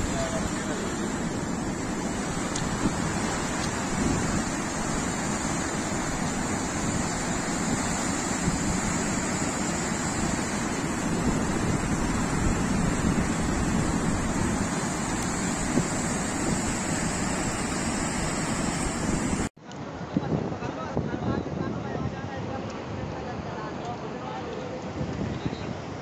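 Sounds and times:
floodwater rushing: 0:00.0 - 0:19.5.

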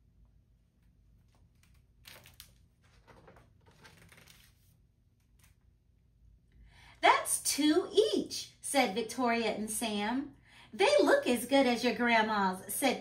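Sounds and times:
paper page turning: 0:01.1 - 0:05.7.

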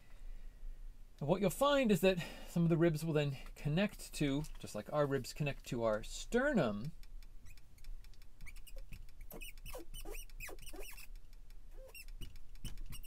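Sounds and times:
marker squeaking on glass: 0:07.4 - 0:11.1, 0:11.7 - 0:13.0.

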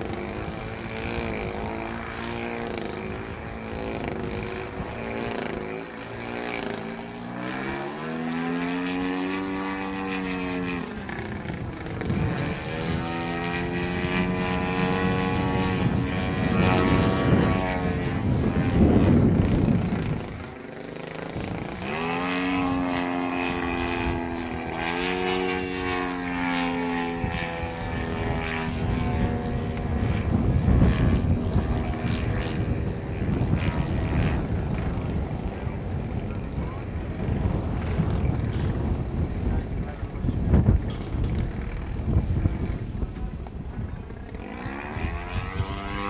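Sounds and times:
model plane engine buzzing: 0:00.0 - 0:46.0.

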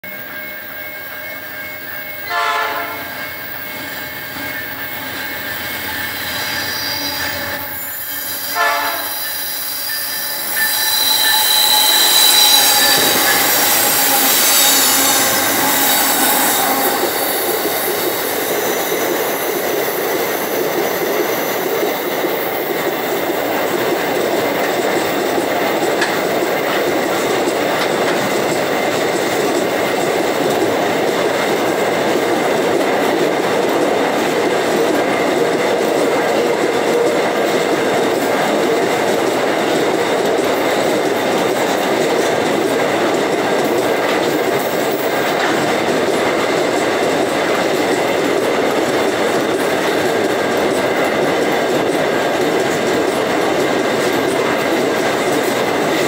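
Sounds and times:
diesel locomotive horn blasts: 0:02.2 - 0:03.2, 0:06.4 - 0:17.9
high-pitched wheel squeal: 0:03.0 - 0:21.7.

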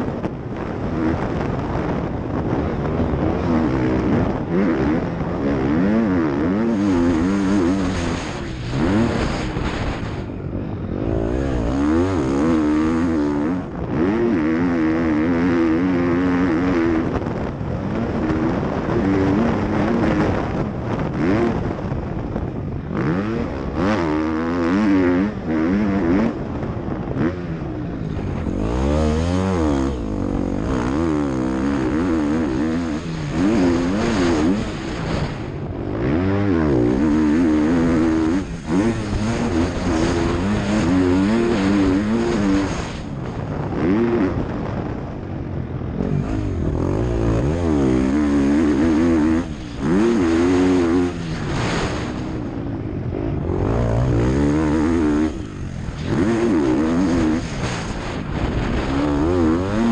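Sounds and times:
motocross bike engine revving: 0:00.0 - 0:59.9.

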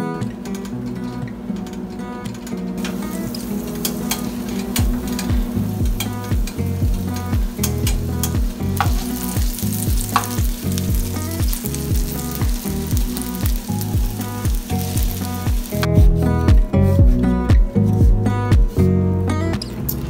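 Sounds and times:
background music with steady beat: 0:00.0 - 0:20.0
butter sizzling in a frying pan: 0:02.8 - 0:15.9.

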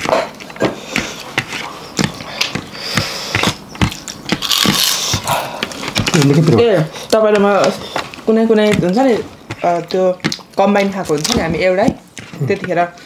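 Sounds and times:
chewing and lip-smacking: 0:09.8 - 0:10.6.

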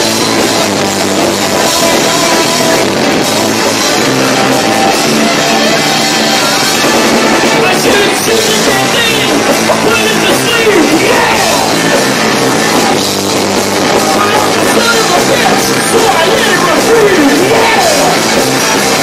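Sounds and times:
live punk rock band: 0:00.0 - 0:19.0.

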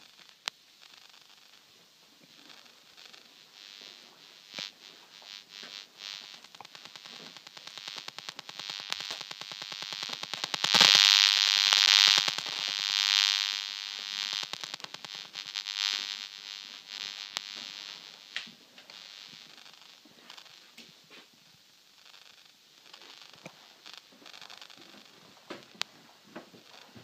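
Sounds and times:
fast even electronic buzz: 0:02.4 - 0:20.6.

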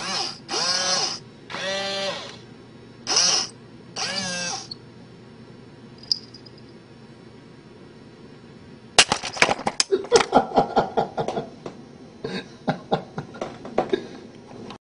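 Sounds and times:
person laughing: 0:09.8 - 0:11.6, 0:12.2 - 0:14.2.

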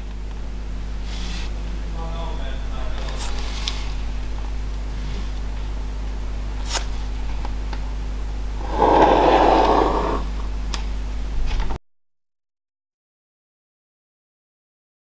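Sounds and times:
pencil scratching on paper: 0:08.6 - 0:10.3.

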